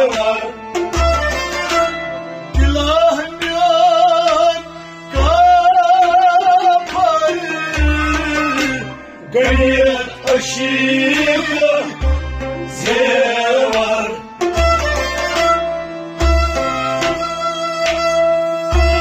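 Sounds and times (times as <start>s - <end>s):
man singing ornamented melody: 0.0s - 0.6s, 2.5s - 14.3s, 18.7s - 19.0s
harmonium: 0.0s - 19.0s
rabab plucking: 0.0s - 19.0s.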